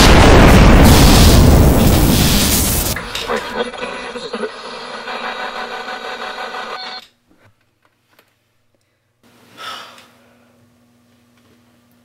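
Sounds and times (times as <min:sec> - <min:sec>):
loud rushing noise: 0:00.0 - 0:03.0.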